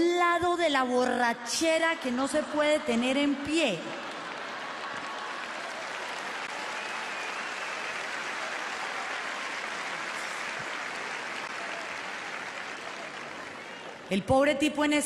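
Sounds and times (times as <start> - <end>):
large audience applauding: 3.6 - 14.1.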